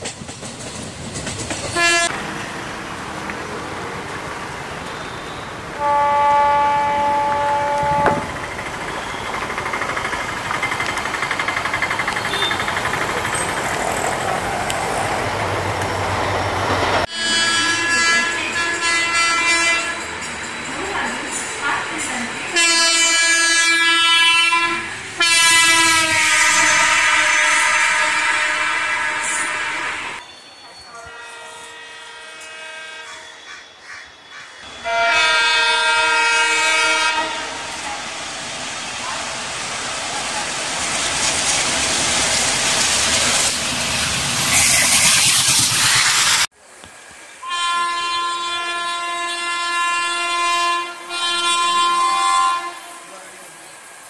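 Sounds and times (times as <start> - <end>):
train wheels clattering on track: 0.0 - 5.2, 7.0 - 17.1
diesel locomotive engine: 0.0 - 54.0
train running noise: 0.0 - 54.0
locomotive horn blasts: 1.8 - 2.5, 4.8 - 8.4, 12.2 - 12.7, 17.1 - 20.1, 22.6 - 30.2, 30.9 - 33.4, 34.7 - 37.8, 47.4 - 53.2.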